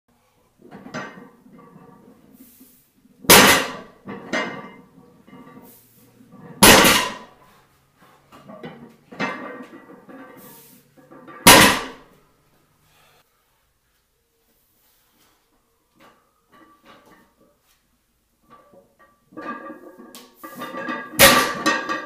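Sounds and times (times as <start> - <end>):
barbell clanging on floor: 0.6 - 2.1, 3.2 - 5.7, 6.3 - 7.4, 8.3 - 12.2, 18.5 - 22.0
metal plates rattling: 3.2 - 7.3, 8.3 - 12.0, 18.4 - 22.0.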